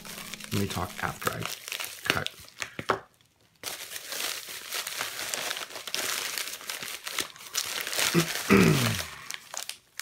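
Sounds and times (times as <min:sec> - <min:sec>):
plastic mailer bag crinkling: 0:00.0 - 0:02.8, 0:03.5 - 0:10.0.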